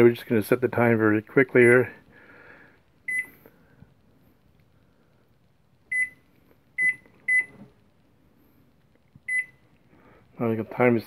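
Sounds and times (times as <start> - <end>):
microwave keypad beeps: 1.6 - 1.9, 3.0 - 3.4, 5.9 - 7.7, 9.2 - 9.7.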